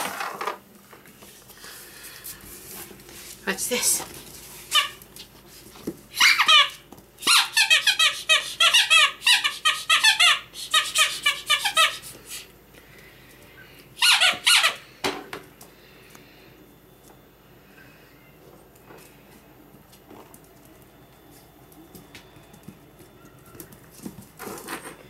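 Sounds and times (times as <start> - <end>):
dog toy squeaking: 4.7 - 5.0, 6.2 - 12.0, 14.0 - 14.8.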